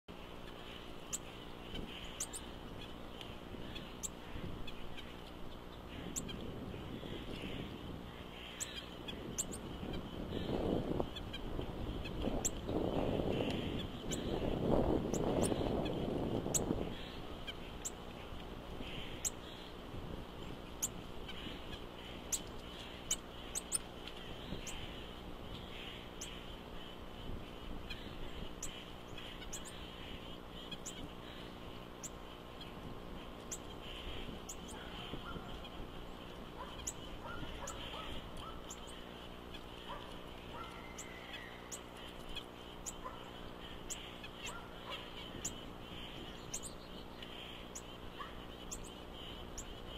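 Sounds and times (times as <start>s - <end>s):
steady low hum: 0.1s - 49.9s
short lower bird calls: 20.8s - 49.9s.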